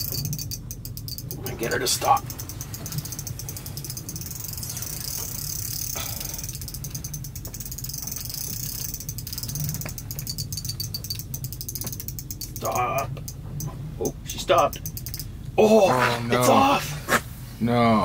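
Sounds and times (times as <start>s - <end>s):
fishing reel drag clicking: 0.0s - 1.4s, 2.1s - 12.8s, 14.7s - 15.3s.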